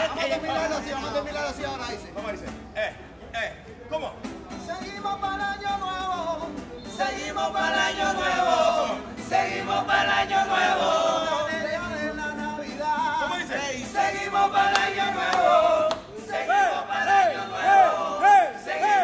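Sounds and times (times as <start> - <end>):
men singing together: 6.9 - 19.0.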